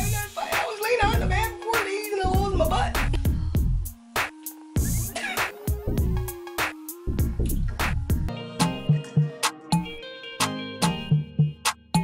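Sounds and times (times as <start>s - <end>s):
steady drum beat: 0.0s - 8.3s
background music: 0.0s - 12.0s.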